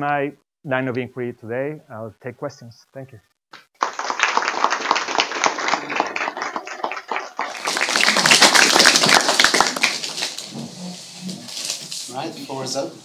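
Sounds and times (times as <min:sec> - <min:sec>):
audience applauding: 0:03.8 - 0:10.5.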